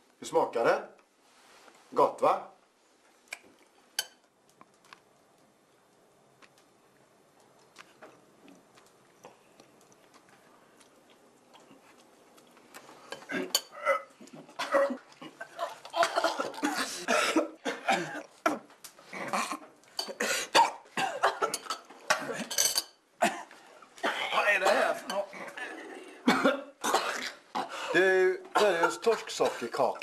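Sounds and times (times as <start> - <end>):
person coughing: 13.3 - 15.0, 16.0 - 18.7, 20.2 - 22.6, 26.2 - 28.0, 28.6 - 29.7.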